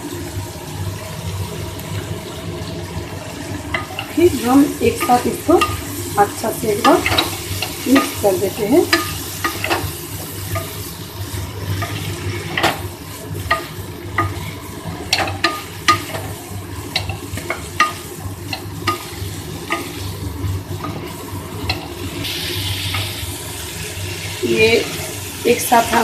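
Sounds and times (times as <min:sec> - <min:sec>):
frying sizzle: 0:00.0 - 0:26.0
spatula scraping and knocking pan: 0:03.7 - 0:23.3.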